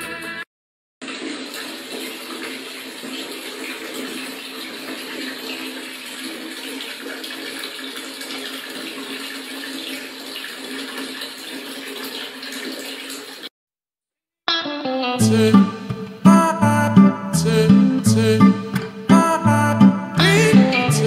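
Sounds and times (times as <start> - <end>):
water running into metal bucket: 1.0 - 13.5.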